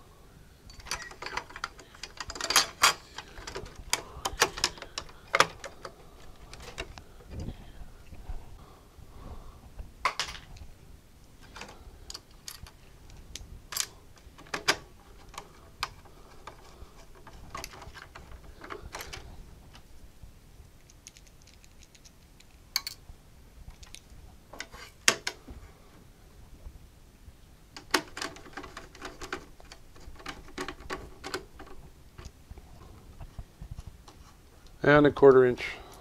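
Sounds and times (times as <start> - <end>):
hands handling metal parts clicks: 0.7 - 7.5, 11.4 - 19.8, 20.8 - 23.0, 23.7 - 25.4, 27.8 - 32.4.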